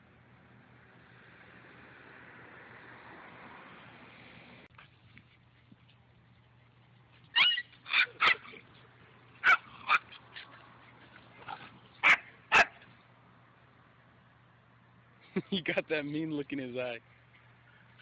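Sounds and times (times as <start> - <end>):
puppies yipping: 7.3 - 8.6, 9.4 - 12.8.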